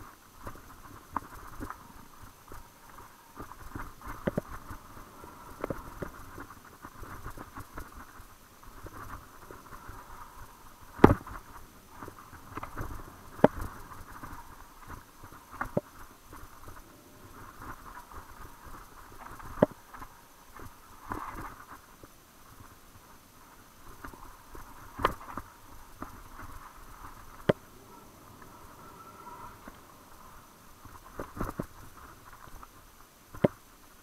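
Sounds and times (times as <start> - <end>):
mountain bike rattling over dirt: 0.0 - 34.0
sharp knocks of bike hitting bumps: 3.4 - 4.9, 10.9 - 16.4, 24.0 - 32.6, 33.3 - 33.6.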